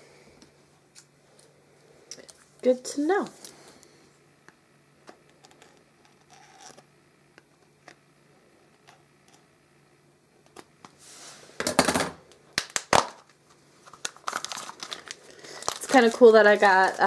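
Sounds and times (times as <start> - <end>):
plastic packaging rustling: 12.9 - 17.0.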